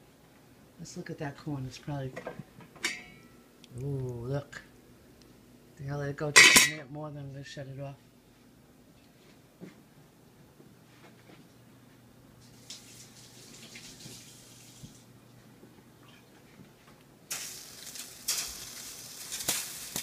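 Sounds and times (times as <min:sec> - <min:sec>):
water hissing in hot pan: 0:12.4 - 0:15.1, 0:17.3 - 0:20.0.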